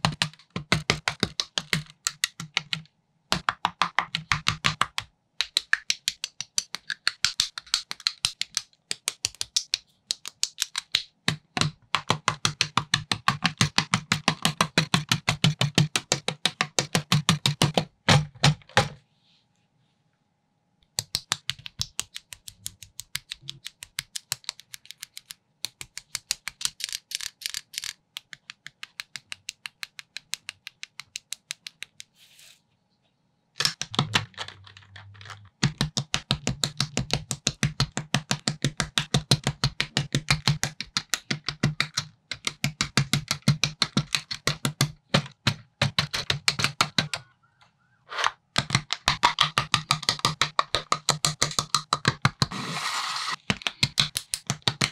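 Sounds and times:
plastic bricks clicking together: 21.0 - 32.1, 33.6 - 47.2.

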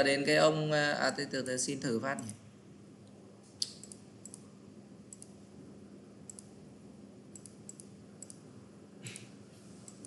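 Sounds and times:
low steady hum: 0.0 - 10.0
computer mouse clicks: 3.0 - 4.5, 5.1 - 5.4, 6.2 - 6.6, 7.3 - 8.4, 9.0 - 10.0.

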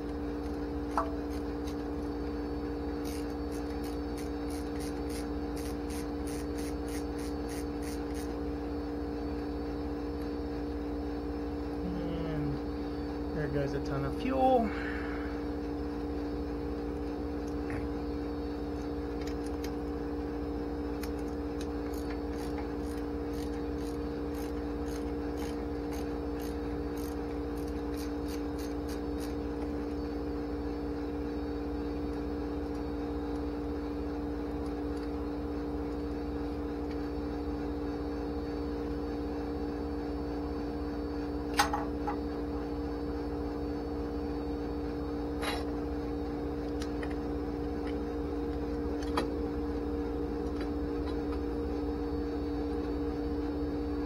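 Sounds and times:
steady hum: 0.0 - 54.0
ratchet wrench clicking: 3.0 - 8.3, 21.0 - 29.4.

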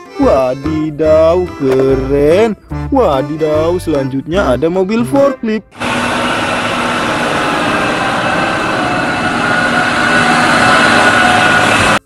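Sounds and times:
forklift engine running: 5.7 - 12.0
faint whine: 5.8 - 12.0.

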